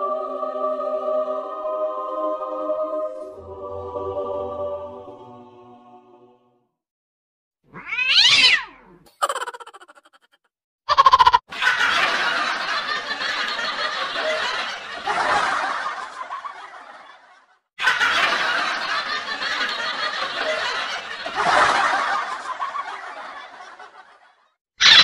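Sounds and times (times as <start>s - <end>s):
canned audience laughter: 9.1s - 10.4s, 11.0s - 24.6s.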